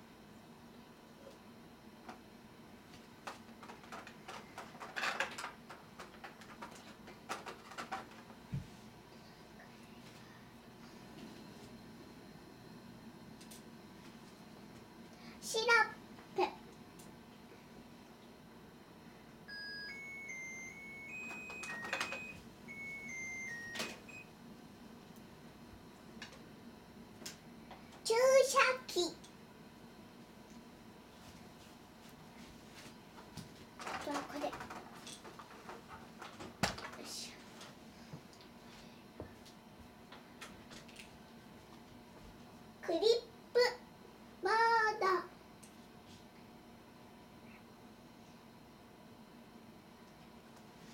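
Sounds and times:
toy parts clicking and rustling: 3.3 - 8.2
electronic beeping tune: 19.5 - 24.3.

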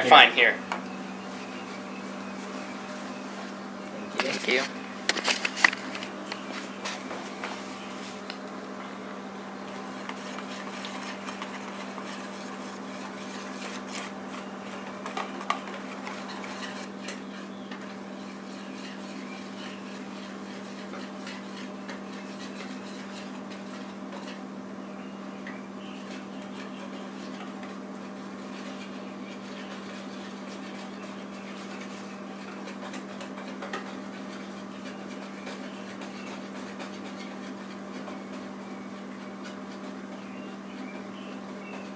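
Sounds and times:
utensil scraping a bowl: 9.7 - 24.5, 25.9 - 41.9.

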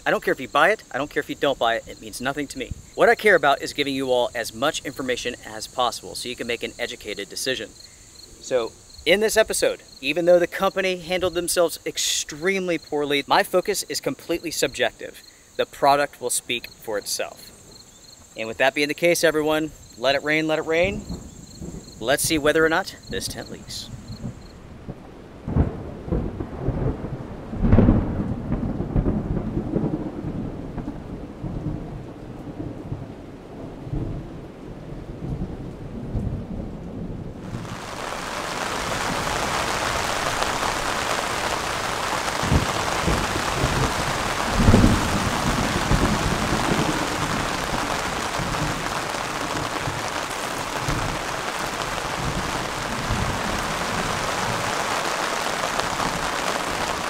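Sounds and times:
rain falling: 0.0 - 57.0
thunder rumbling: 19.6 - 57.0.

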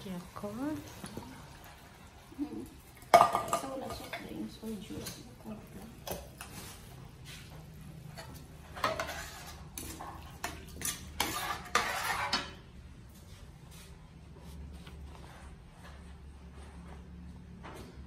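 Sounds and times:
metal spatula scraping a wok: 6.2 - 12.8.

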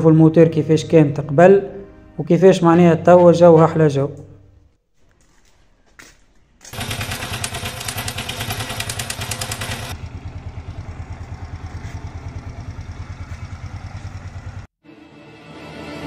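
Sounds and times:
moped engine running: 6.6 - 14.7.

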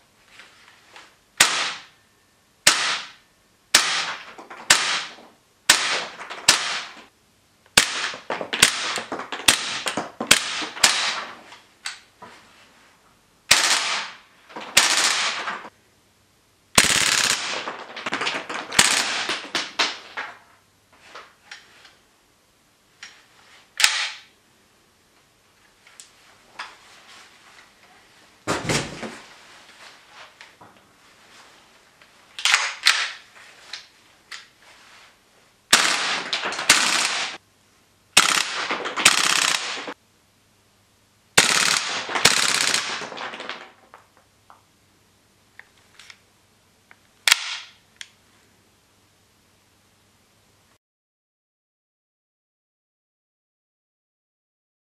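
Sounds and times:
airsoft gun shots: 1.4 - 1.9, 2.6 - 7.0, 7.8 - 11.4, 13.5 - 15.7, 16.8 - 20.2, 23.8 - 24.3, 35.7 - 37.4, 38.2 - 40.0, 41.4 - 43.6
dull thump: 28.5 - 29.2.

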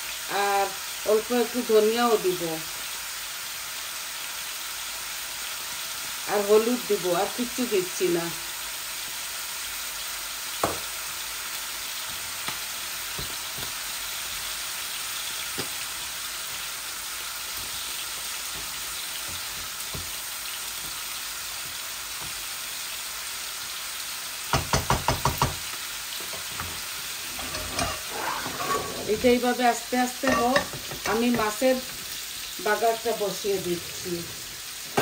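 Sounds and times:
vegetables sizzling in oil: 0.0 - 35.0
wooden spatula knocking pan: 24.5 - 26.8, 30.2 - 32.0.

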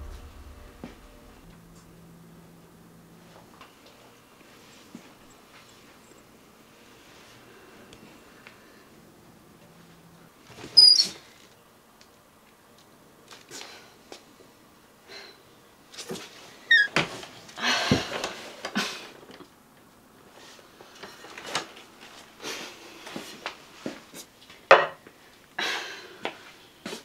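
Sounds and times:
brief squeak: 10.8 - 11.2, 16.7 - 16.9.

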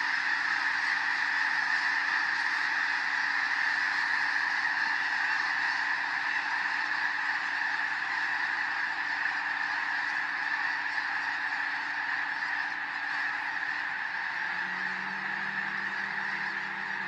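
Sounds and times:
geese honking: 0.0 - 17.0
faint low hum: 14.2 - 17.0.

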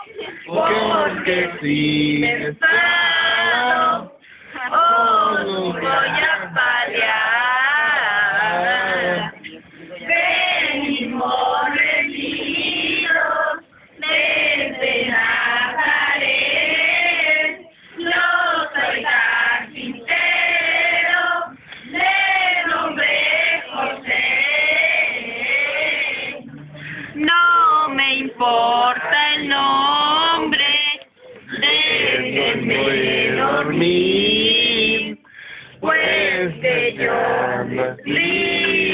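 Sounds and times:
group singing together: 0.0 - 38.9.

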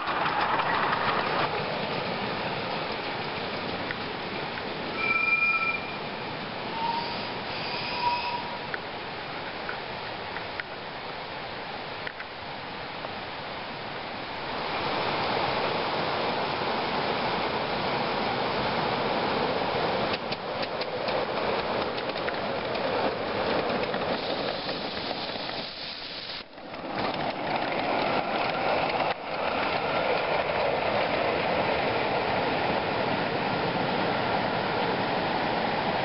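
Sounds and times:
wheels clicking over rails: 0.0 - 5.0, 19.9 - 32.9
hiss of steam: 5.9 - 8.7, 23.9 - 26.6.

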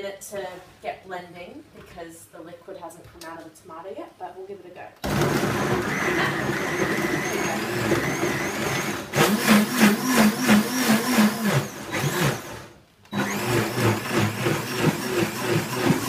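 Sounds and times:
blender churning: 5.0 - 16.0.

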